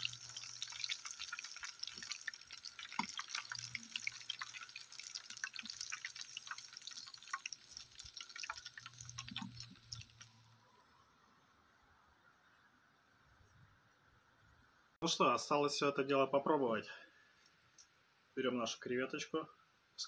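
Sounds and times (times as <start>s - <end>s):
shrimp deep-frying in oil: 0.0s - 10.7s.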